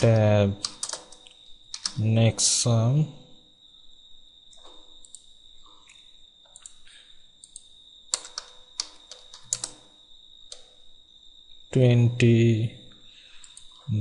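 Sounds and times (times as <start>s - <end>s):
computer keyboard typing: 0.0s - 2.0s, 4.6s - 5.3s, 7.4s - 9.9s.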